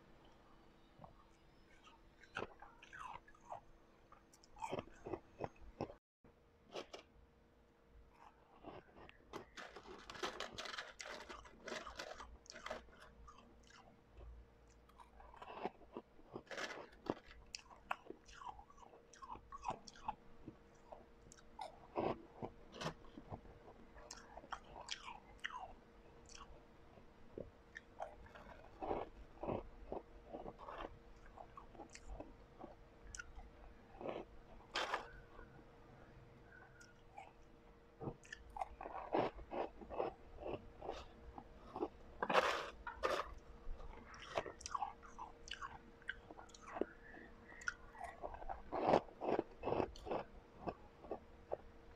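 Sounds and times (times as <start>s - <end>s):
crunching and chewing ice: 1.0s - 6.0s, 6.7s - 7.1s, 8.1s - 35.6s, 36.4s - 51.9s.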